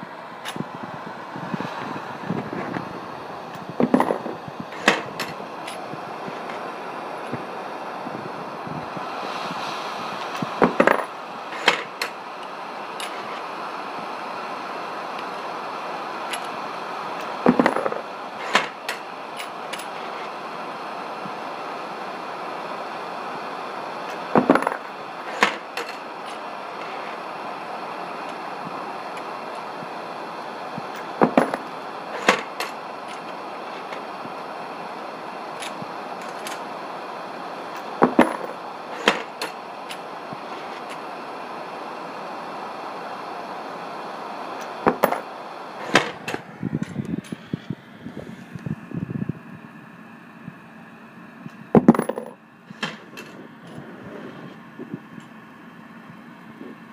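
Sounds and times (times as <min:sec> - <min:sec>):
gas torch flame hissing: 0:00.1 - 0:48.8
brass cases dropping into a box: 0:03.8 - 0:05.8, 0:10.6 - 0:12.1, 0:17.2 - 0:20.0, 0:24.4 - 0:26.4, 0:31.0 - 0:33.3, 0:37.8 - 0:39.6, 0:44.9 - 0:46.4, 0:51.8 - 0:53.4.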